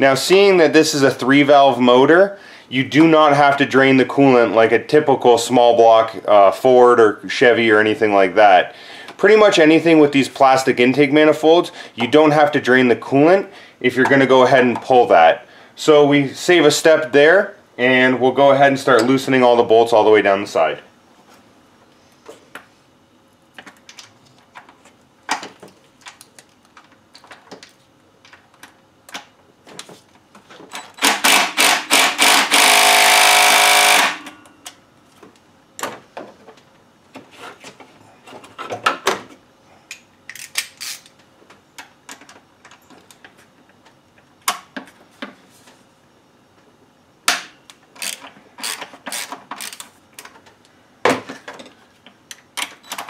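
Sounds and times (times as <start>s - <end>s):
ratchet clicking: 48.0s - 49.9s.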